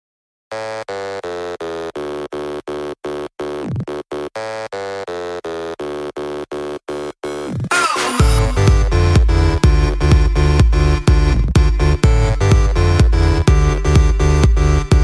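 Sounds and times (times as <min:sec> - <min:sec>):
pulsing synthesized tone: 0:05.8 - 0:15.0.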